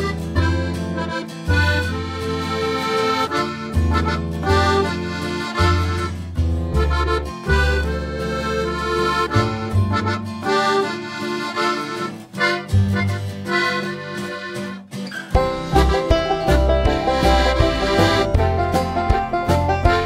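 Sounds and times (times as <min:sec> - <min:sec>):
bass line: 0:00.0 - 0:14.5, 0:15.3 - 0:20.0
sustained chords: 0:15.4 - 0:20.0.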